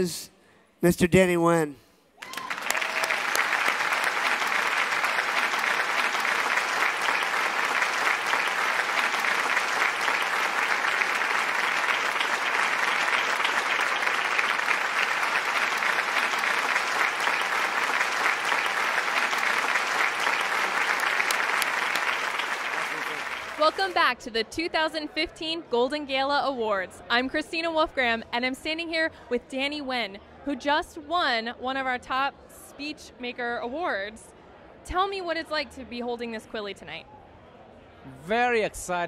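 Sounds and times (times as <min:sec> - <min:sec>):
audience applauding: 0:02.2 - 0:24.1.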